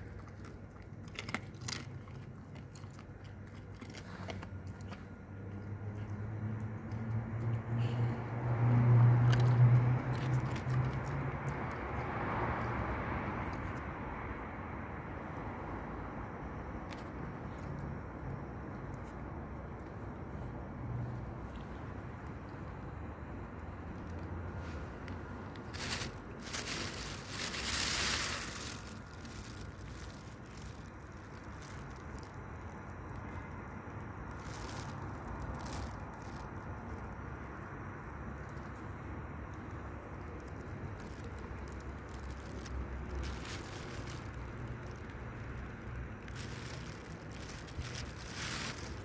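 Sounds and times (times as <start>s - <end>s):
traffic murmur: 0.0s - 49.0s
vehicle engine hum: 0.0s - 49.0s
rustling hissing noises: 24.1s - 37.2s, 38.4s - 49.0s.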